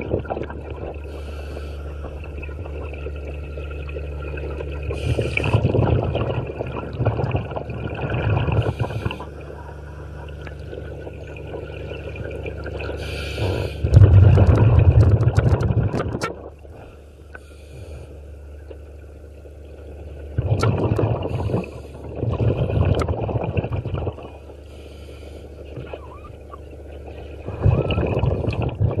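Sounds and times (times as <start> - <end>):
exhaled bubbles rushing: 0.0 - 17.3, 18.5 - 29.0
steady low hum: 0.0 - 29.0
regulator inhaling hiss: 1.1 - 2.0, 5.0 - 5.5, 8.6 - 9.4, 13.0 - 13.9, 17.3 - 18.2, 24.6 - 25.7.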